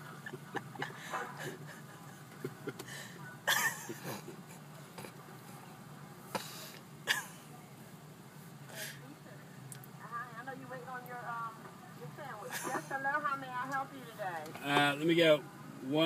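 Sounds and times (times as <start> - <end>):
stifled breathy laughter: 0.0 - 4.6
steady low hum: 0.0 - 16.0.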